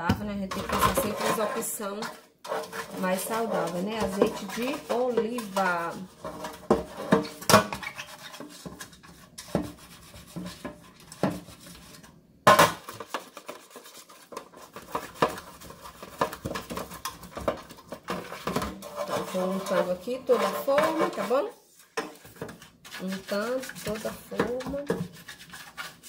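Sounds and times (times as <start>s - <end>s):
metal baking pan clattering: 0.4s - 8.8s, 12.5s - 25.2s
faint rubbing: 18.2s - 26.0s.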